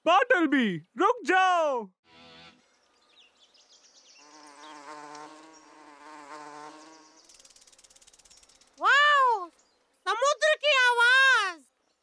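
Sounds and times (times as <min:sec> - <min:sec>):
cartoon bee wings buzzing: 0:04.2 - 0:08.2.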